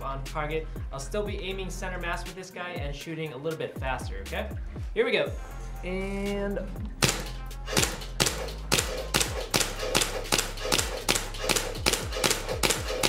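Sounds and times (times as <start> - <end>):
airsoft pistol shots: 7.0 - 13.0.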